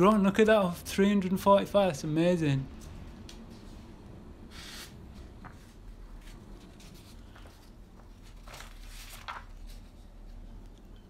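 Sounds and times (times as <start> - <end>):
low steady hum: 0.0 - 11.0
soft rustles: 4.6 - 10.4.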